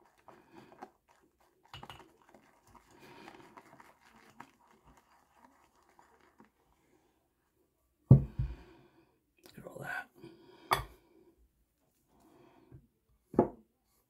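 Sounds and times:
brush whipping lather in a bowl: 0.0 - 7.0.

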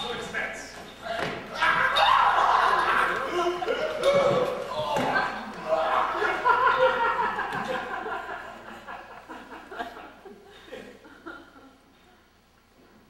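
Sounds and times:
audience laughing: 1.6 - 11.9.

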